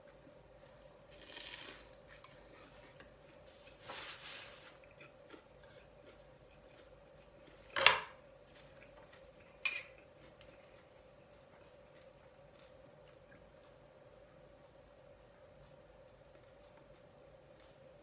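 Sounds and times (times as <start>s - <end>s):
faint steady hum: 0.0s - 18.0s
crunchy eating noises: 0.1s - 18.0s
spoon clinking against glass bowl: 9.6s - 10.0s.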